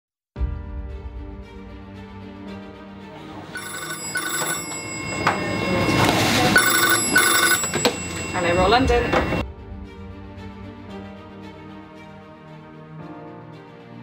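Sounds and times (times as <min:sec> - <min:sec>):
background music: 0:00.4 - 0:14.0
telephone double ring: 0:03.6 - 0:09.4.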